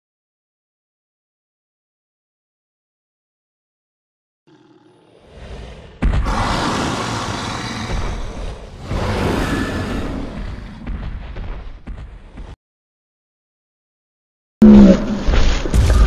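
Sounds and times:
deep rumbling dinosaur roar: 0:04.5 - 0:10.8.

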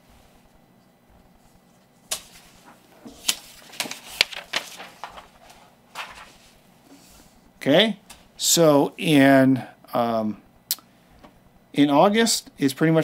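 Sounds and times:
paper maps rustling and flapping: 0:01.4 - 0:07.4.

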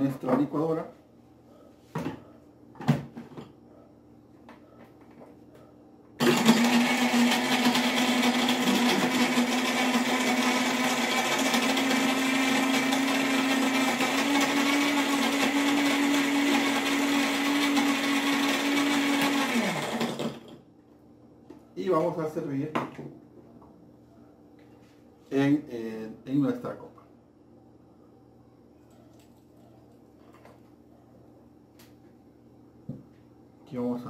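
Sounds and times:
blender crushing ice: 0:06.2 - 0:20.6.

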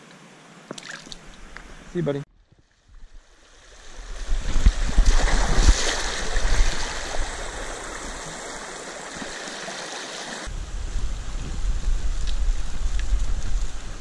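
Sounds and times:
stream water rushing over rocks: 0:03.9 - 0:10.5.

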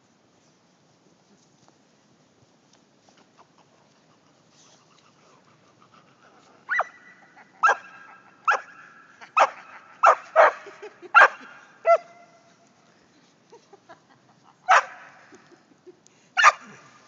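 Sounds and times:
small dog barking: 0:06.7 - 0:12.2, 0:14.7 - 0:15.2, 0:16.4 - 0:16.9.

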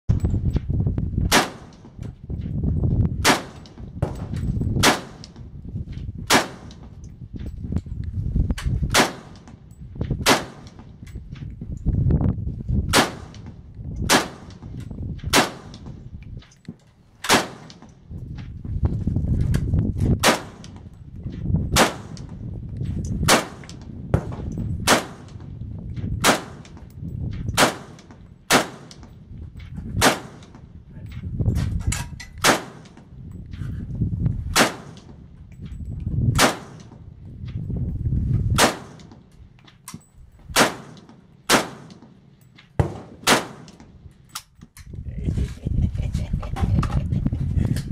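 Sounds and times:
rifle single shots: 0:01.3 - 0:01.9, 0:03.2 - 0:05.4, 0:06.3 - 0:06.9, 0:08.9 - 0:09.6, 0:10.2 - 0:10.8, 0:12.9 - 0:14.6, 0:15.3 - 0:15.9, 0:17.2 - 0:17.9, 0:20.2 - 0:20.8, 0:21.7 - 0:22.3, 0:23.2 - 0:25.4, 0:26.2 - 0:26.8, 0:27.5 - 0:29.1, 0:30.0 - 0:30.6, 0:32.4 - 0:33.1, 0:34.5 - 0:35.2, 0:36.4 - 0:37.0, 0:38.5 - 0:39.3, 0:40.5 - 0:44.0.

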